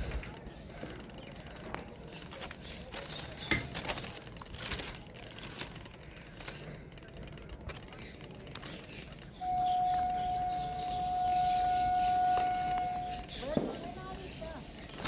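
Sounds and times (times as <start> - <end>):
sharp clicks: 0.0 - 15.0
high-pitched tone: 9.4 - 13.3.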